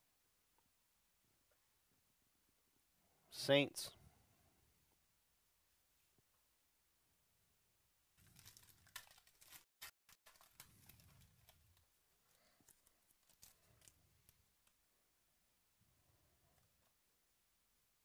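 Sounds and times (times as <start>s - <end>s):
trading cards rustling and clicking: 8.2s - 14.8s.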